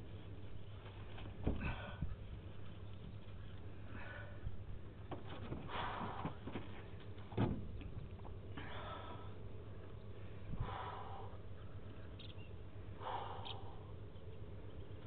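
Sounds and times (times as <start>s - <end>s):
low steady hum: 0.0s - 15.0s
person breathing hard: 1.6s - 2.2s, 3.8s - 4.6s, 8.5s - 9.5s, 10.2s - 11.9s, 12.9s - 14.0s.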